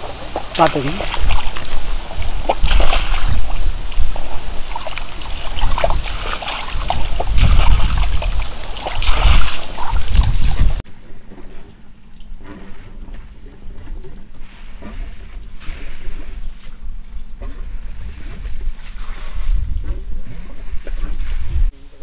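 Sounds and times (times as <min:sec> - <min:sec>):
hands splashing water in metal bowl: 0:00.4 - 0:10.7.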